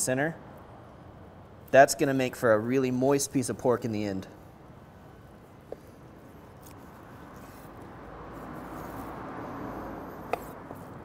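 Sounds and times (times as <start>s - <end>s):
knife slicing raw meat: 10.2s - 10.9s.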